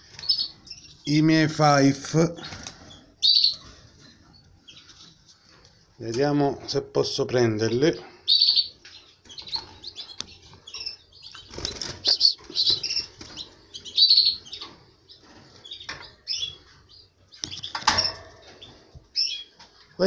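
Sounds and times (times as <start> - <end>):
canaries chirping: 0.0 - 20.0
wings fluttering: 11.2 - 13.9.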